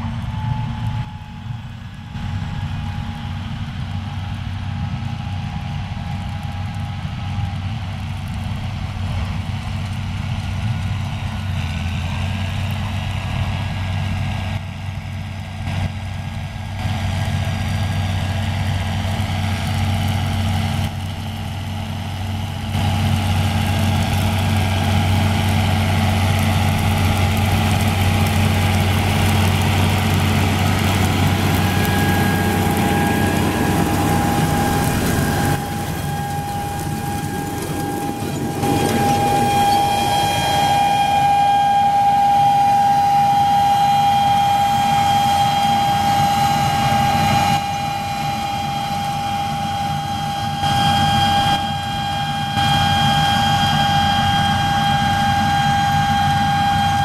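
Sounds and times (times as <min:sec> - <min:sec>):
high whine: 0:00.0 - 0:04.6, 0:20.6 - 0:57.0
tractor diesel engine running: 0:00.0 - 0:57.0.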